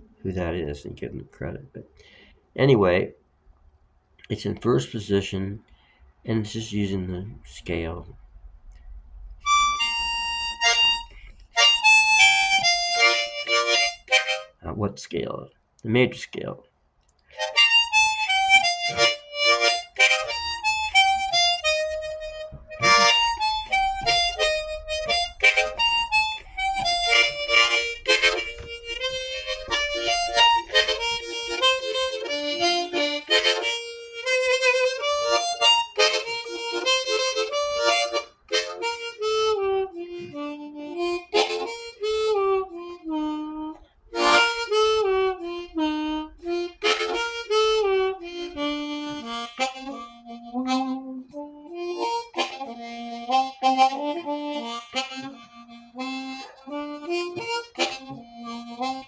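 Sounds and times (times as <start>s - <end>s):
solo harmonica melody: 9.4s - 14.6s, 17.3s - 59.0s.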